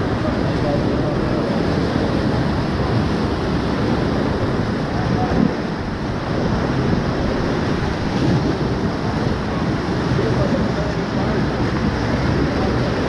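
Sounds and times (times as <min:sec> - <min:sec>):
rapids rushing: 0:00.0 - 0:13.0.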